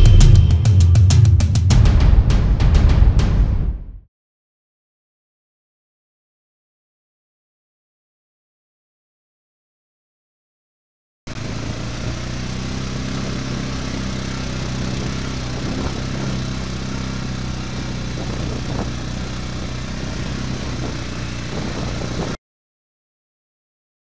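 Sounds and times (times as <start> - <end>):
quad bike engine running: 11.3 - 22.4.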